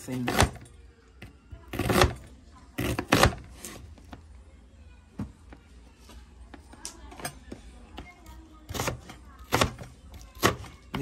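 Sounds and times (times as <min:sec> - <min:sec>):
knife slicing onion: 0:08.7 - 0:11.0.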